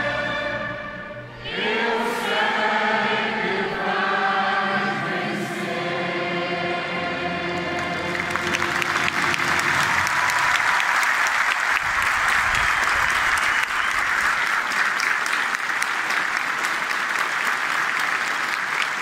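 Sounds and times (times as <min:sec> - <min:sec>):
crowd applauding: 0:07.6 - 0:19.0.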